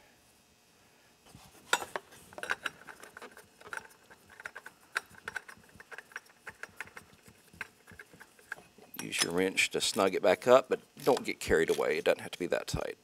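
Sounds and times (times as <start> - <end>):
oil filter clicking and tapping: 2.4 - 9.1.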